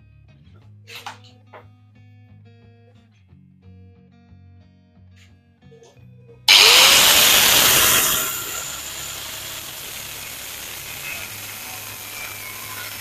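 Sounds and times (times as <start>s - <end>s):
angle grinder whining: 6.5s - 13.0s
grinder disc cutting steel plate: 6.5s - 13.0s.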